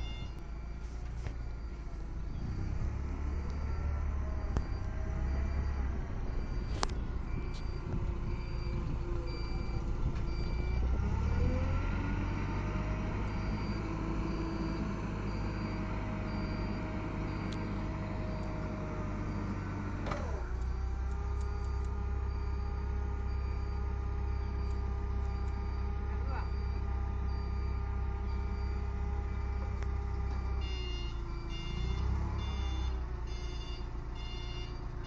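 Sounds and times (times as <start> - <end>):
pulsing warning beeper: 0.0 - 0.8, 30.4 - 34.9
forklift engine revving: 1.9 - 35.0.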